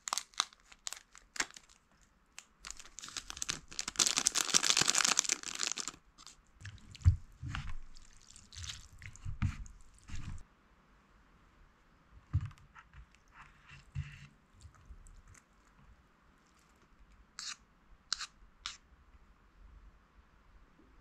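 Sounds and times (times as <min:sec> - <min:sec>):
wet noodle sounds: 0:02.9 - 0:10.4.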